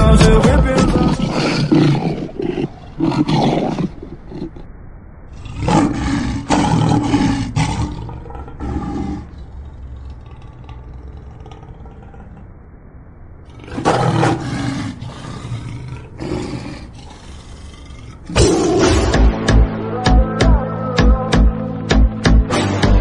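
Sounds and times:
lion roaring: 0:00.8 - 0:04.7, 0:05.3 - 0:12.6, 0:13.4 - 0:19.4.

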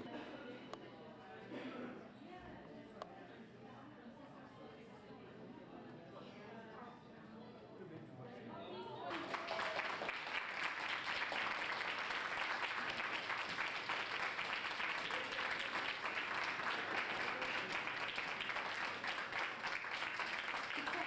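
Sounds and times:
crowd applauding: 0:09.1 - 0:21.0.

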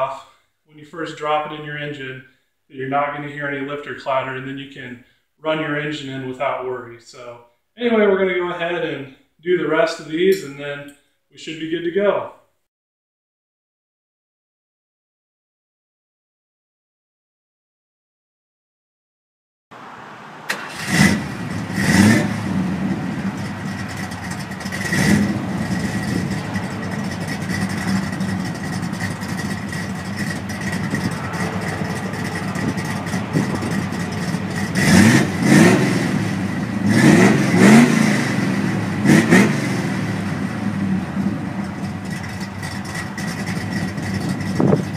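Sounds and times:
car engine idling and revving: 0:19.8 - 0:44.9.

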